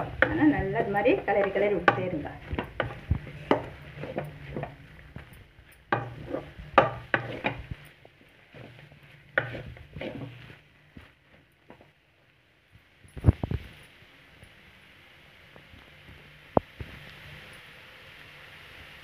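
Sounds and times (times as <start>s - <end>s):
wooden spatula scraping metal pan: 0.0s - 11.9s.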